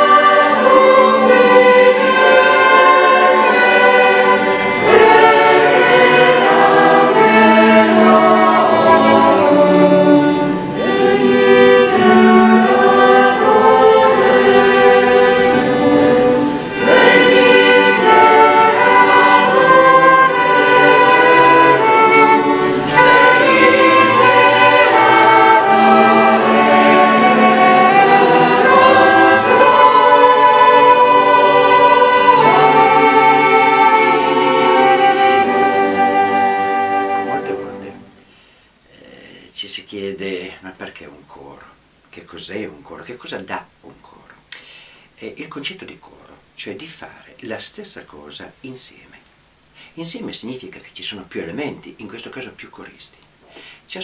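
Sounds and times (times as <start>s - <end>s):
choir singing: 0.0s - 38.2s
flute: 0.0s - 38.3s.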